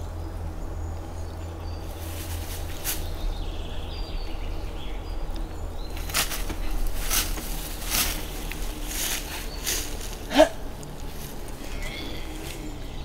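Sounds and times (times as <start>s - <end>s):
steady low rumble: 0.0s - 13.0s
rustling swishes: 1.9s - 3.3s, 6.0s - 12.8s.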